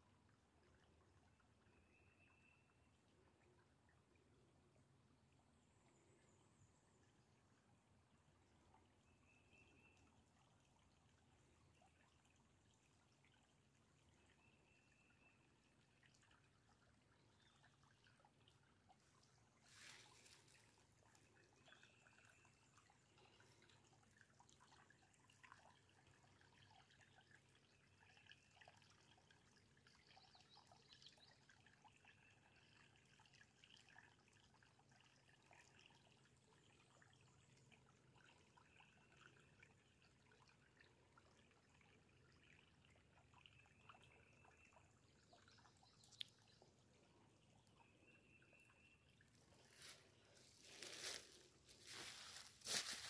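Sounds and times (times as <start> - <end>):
stream trickling: 0.0 - 53.0
footsteps on leaf litter: 49.8 - 53.0.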